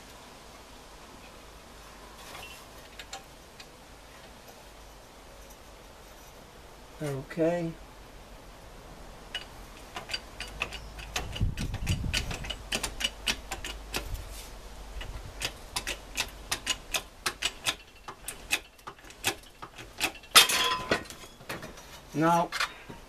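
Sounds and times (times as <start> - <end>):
ratchet clicking: 9.3 - 14.2, 15.0 - 20.4.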